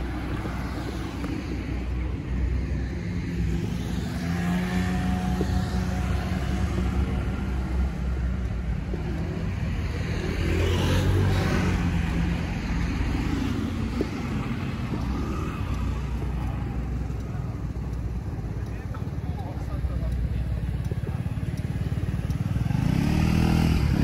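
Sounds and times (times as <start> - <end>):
car and scooter engines: 0.0 - 24.0.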